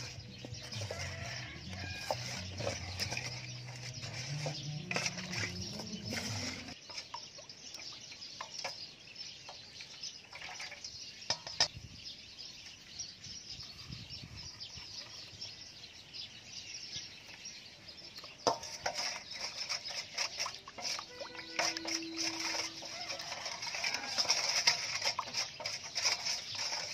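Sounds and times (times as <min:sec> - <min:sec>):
spoon stirring batter: 0:00.0 - 0:08.8, 0:18.1 - 0:26.9
birds chirping: 0:00.0 - 0:26.9.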